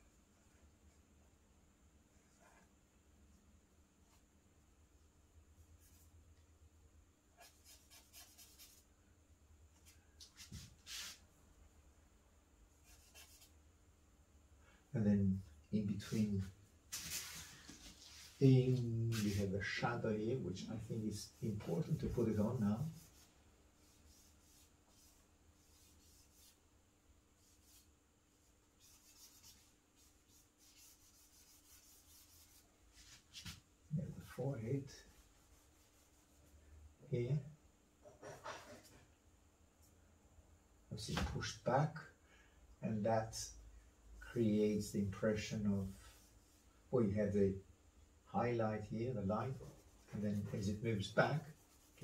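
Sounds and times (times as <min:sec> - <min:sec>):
charcoal scratching on paper: 0:07.4 - 0:08.8, 0:12.8 - 0:13.5, 0:21.3 - 0:26.6, 0:27.4 - 0:27.9, 0:28.8 - 0:33.6, 0:35.0 - 0:36.5, 0:49.5 - 0:52.0.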